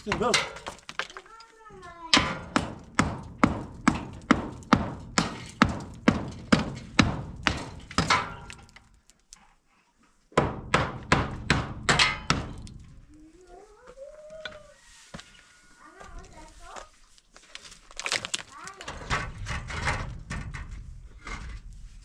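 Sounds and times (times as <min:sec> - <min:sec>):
hand hammer striking: 0:02.2 - 0:08.4, 0:10.4 - 0:12.7.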